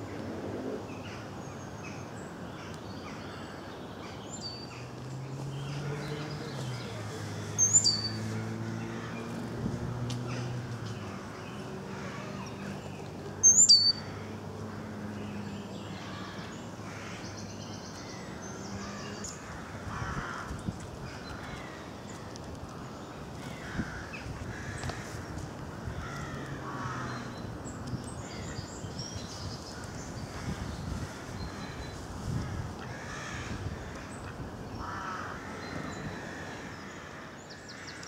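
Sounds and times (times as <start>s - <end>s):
wild birds calling: 0.0s - 38.0s
distant harsh bird calls: 5.4s - 9.4s
small bird chirping loudly: 13.4s - 14.0s.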